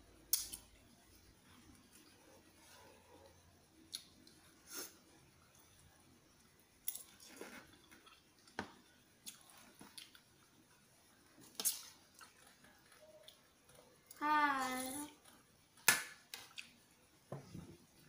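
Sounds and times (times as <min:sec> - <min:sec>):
soft chewing: 0:00.3 - 0:14.2.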